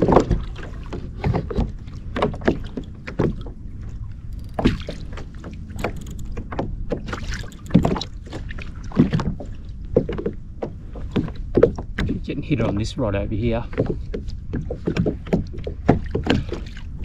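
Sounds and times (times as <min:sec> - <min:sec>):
waves slapping against kayak hull: 0:00.0 - 0:12.7, 0:13.6 - 0:17.0
steady low rumble: 0:01.8 - 0:14.6.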